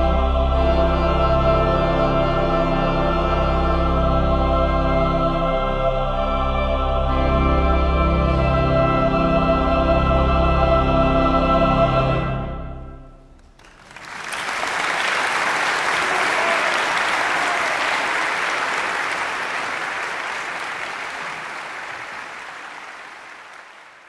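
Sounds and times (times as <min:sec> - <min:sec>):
pipe organ and choir chord: 0:00.0 - 0:13.4
audience applause: 0:13.4 - 0:24.0.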